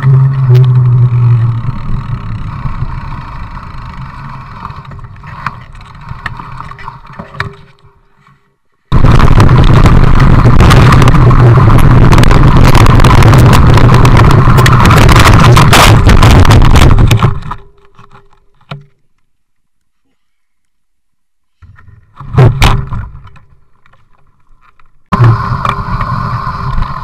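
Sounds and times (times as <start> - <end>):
distorted wind rumble on microphone: 0.0 - 7.2, 8.9 - 17.6, 25.1 - 27.0
thump: 22.2 - 23.2.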